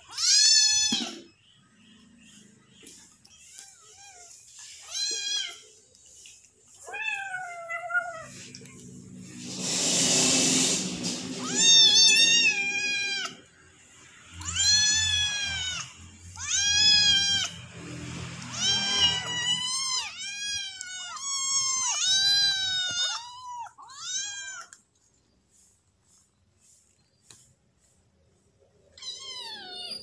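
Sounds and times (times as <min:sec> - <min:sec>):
kittens meowing: 0:11.4 - 0:13.5, 0:14.3 - 0:17.6, 0:18.4 - 0:24.8, 0:28.9 - 0:30.0.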